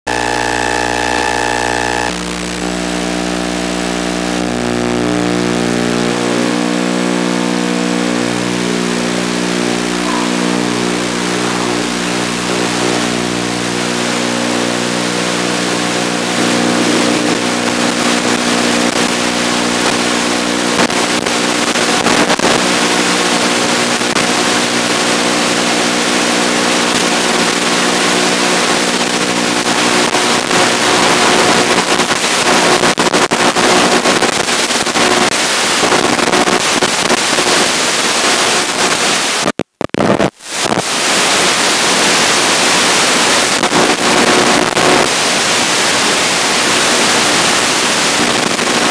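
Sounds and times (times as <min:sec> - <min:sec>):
multi-tone motor hum: 0:00.0 - 0:22.0.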